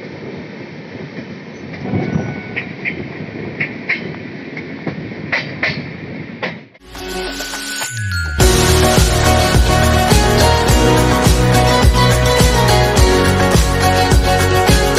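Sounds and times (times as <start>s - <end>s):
music: 6.8s - 14.9s
train coach rumbling: 8.4s - 14.9s.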